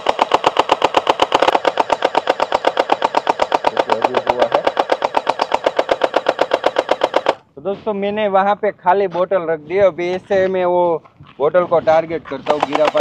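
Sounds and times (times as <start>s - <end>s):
toy blaster rapid firing rattle: 0.0s - 7.4s, 12.4s - 13.0s.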